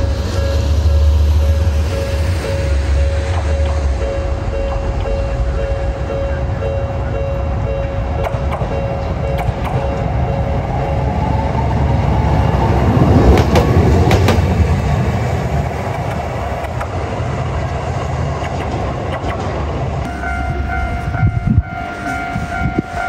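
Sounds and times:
level crossing warning bell: 0.0 - 11.4, 20.1 - 23.0
tram wheels rumbling on track: 0.0 - 23.0
wheels clacking over rail joints: 12.4 - 20.8.

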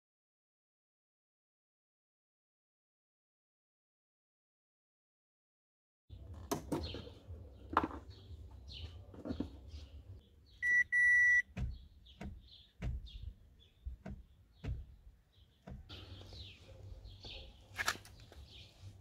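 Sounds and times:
birds chirping: 6.1 - 19.0
car warning chime beeps: 10.6 - 11.6.

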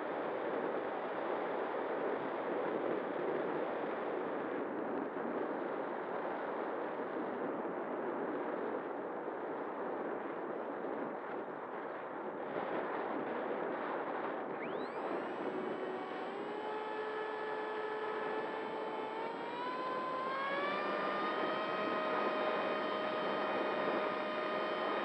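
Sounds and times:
electric motor propeller whine: 14.5 - 25.0.

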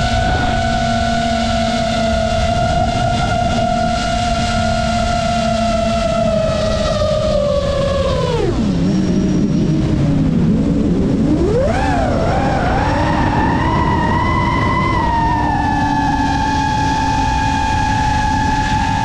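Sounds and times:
quadcopter motors whining: 0.0 - 19.0
rushing noise: 0.0 - 19.0.

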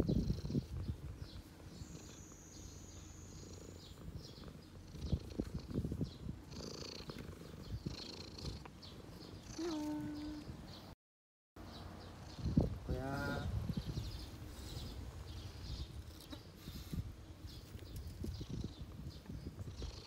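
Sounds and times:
cat purring: 0.0 - 10.5, 18.3 - 20.0.

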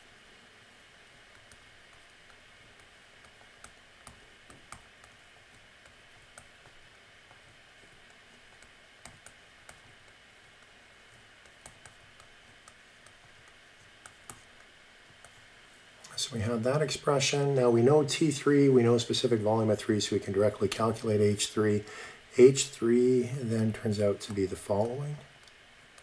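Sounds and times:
low steady hiss: 0.0 - 26.0
stylus tapping on tablet screen: 1.3 - 15.4.

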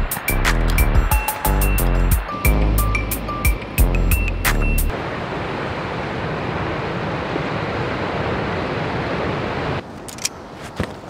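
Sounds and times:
wind: 0.0 - 11.0
surf washing over rocky shore: 4.9 - 9.8.

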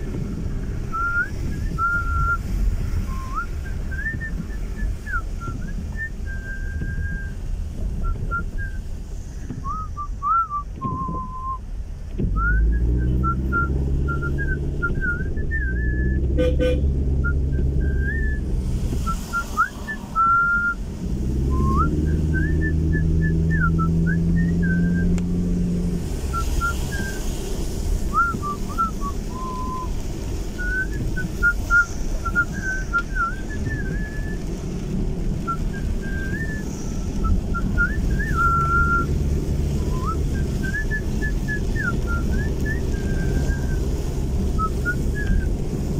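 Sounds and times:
car engine hum: 0.0 - 45.9
person whistling a tune: 0.9 - 7.4, 8.0 - 8.9, 9.6 - 11.6, 12.4 - 16.4, 17.2 - 20.8, 21.4 - 25.2, 26.3 - 27.3, 28.1 - 30.0, 30.6 - 34.5, 35.4 - 39.2, 39.8 - 43.9, 44.6 - 45.5.

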